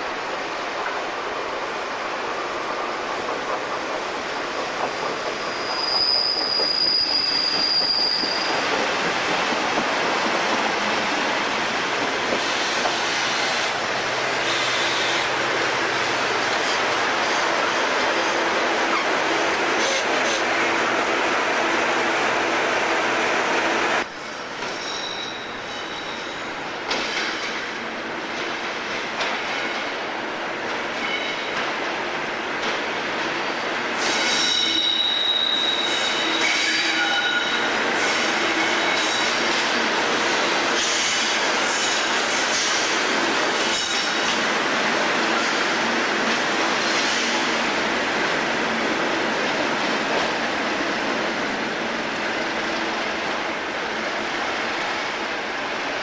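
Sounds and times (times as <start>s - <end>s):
high-pitched wheel squeal: 5.4s - 8.6s, 34.0s - 37.6s.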